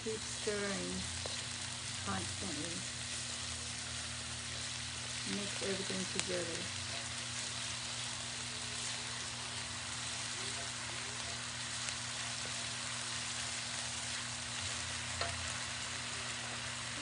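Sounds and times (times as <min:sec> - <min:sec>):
spices sizzling in a wok: 0:00.0 - 0:17.0
wooden spoon clicking on wok: 0:15.1 - 0:15.5.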